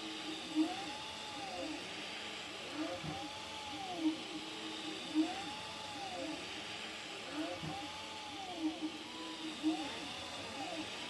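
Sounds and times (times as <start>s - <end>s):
stepper motors whining: 0.0s - 11.0s.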